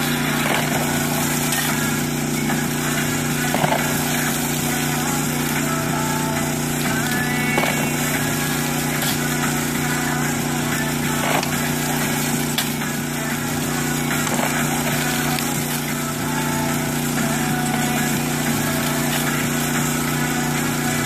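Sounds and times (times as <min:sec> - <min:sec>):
shovel scraping gravel: 0:00.0 - 0:02.1, 0:03.4 - 0:05.2, 0:07.0 - 0:13.0, 0:13.7 - 0:16.5, 0:18.6 - 0:20.5
engine-driven water pump running: 0:00.0 - 0:21.0.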